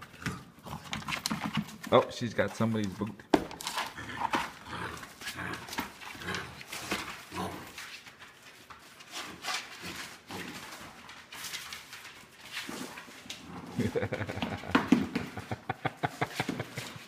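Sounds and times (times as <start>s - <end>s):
dog growling: 3.8s - 7.8s, 12.7s - 14.2s.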